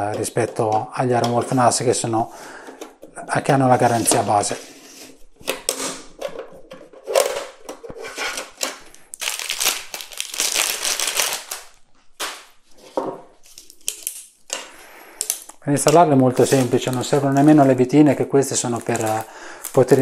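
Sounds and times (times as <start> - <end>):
crinkling rustle: 8.9 - 14.2, 16.2 - 17.9, 18.5 - 20.0.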